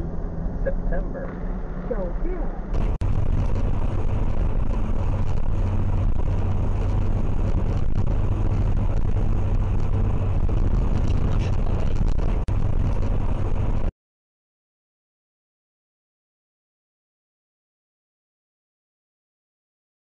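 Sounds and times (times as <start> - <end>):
car road and engine rumble: 0.0 - 13.9
constant low hum: 0.0 - 13.9.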